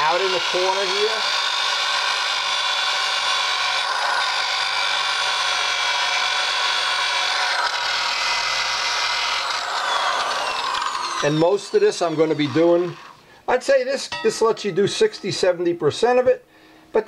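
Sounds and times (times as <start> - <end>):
rotary tool sanding metal: 0.0 - 13.2.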